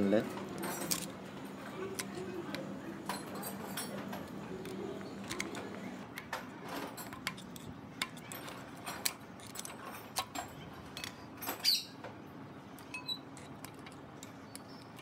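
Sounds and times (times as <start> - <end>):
light metallic clicks and clinks: 3.0 - 4.3, 12.8 - 15.0.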